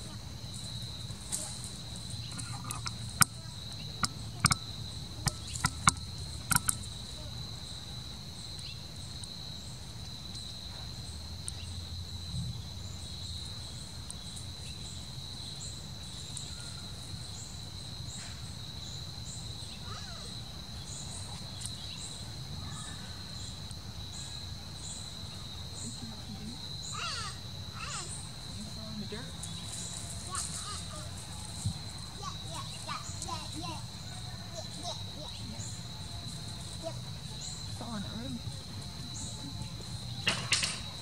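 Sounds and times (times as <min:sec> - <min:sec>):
insects trilling: 0:00.0 - 0:41.0
sharp clicks: 0:04.0 - 0:06.9.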